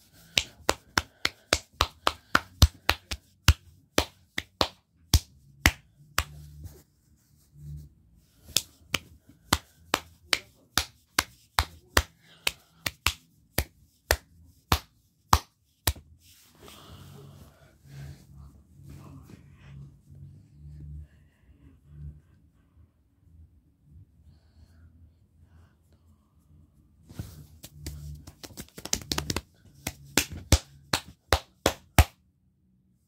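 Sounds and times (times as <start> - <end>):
soft rustling: 27.0 - 29.4.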